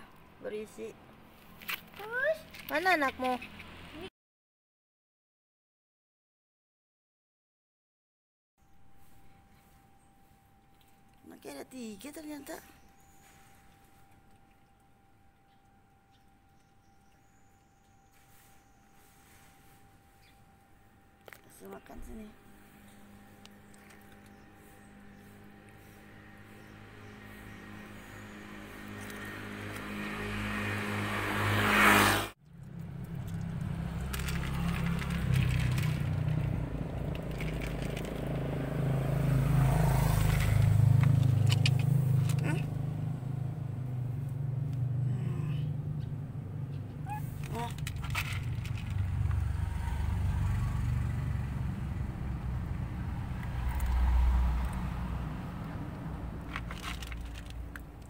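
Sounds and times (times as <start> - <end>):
road traffic rumble: 0.0 - 4.1, 8.7 - 58.0
low hum: 12.6 - 58.0
motor vehicle passing: 21.8 - 58.0.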